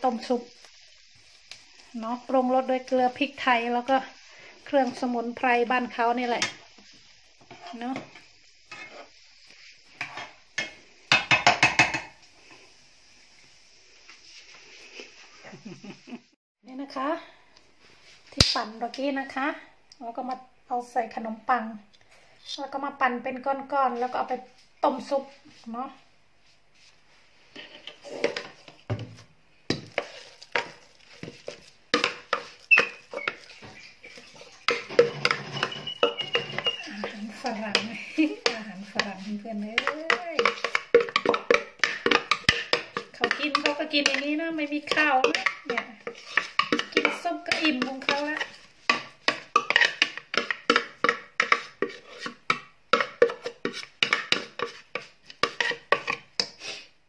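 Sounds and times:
scraping against metal pot: 5.9s - 12.1s, 27.5s - 28.6s, 29.8s - 56.7s
utensil knocking on pot: 11.1s - 12.1s, 39.8s - 44.3s
glass and knife clinking on pot: 34.7s - 37.1s.

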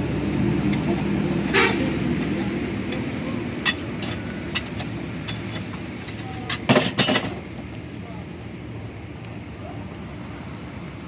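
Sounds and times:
wrench clinking on steel cylinder: 3.6s - 7.4s.

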